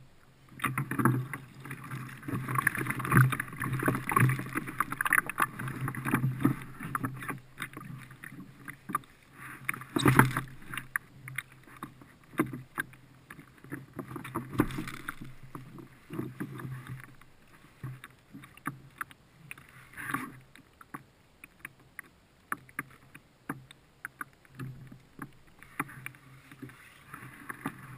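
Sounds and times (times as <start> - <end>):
fishing gear clicks and rustles: 0.5 - 27.9.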